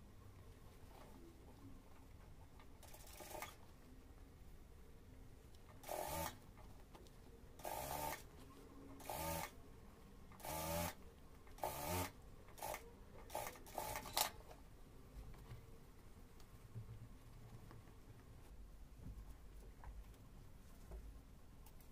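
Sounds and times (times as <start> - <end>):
sewing machine stitching: 2.8 - 3.6, 5.8 - 6.4, 7.6 - 8.2, 9.0 - 9.5, 10.4 - 11.0, 11.6 - 14.4.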